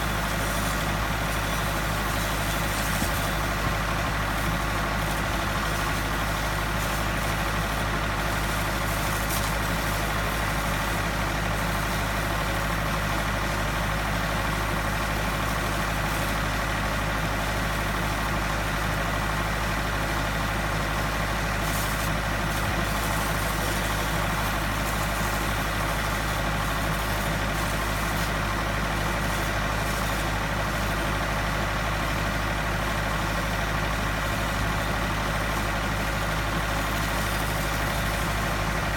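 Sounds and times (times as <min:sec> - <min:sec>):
hiss of water jet: 0:00.0 - 0:12.1, 0:21.0 - 0:31.4, 0:34.4 - 0:38.9.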